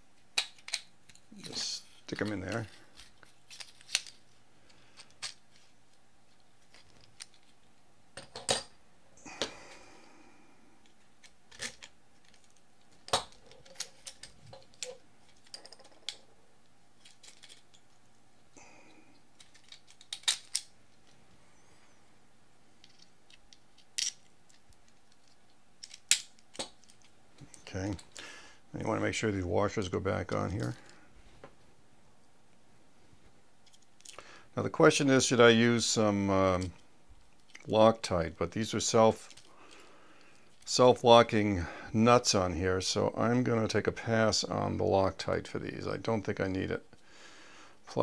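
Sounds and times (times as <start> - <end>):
plastic parts clicking and knocking: 0.2 - 1.3, 10.8 - 16.3, 17.0 - 17.8, 19.4 - 21.1, 22.8 - 28.2.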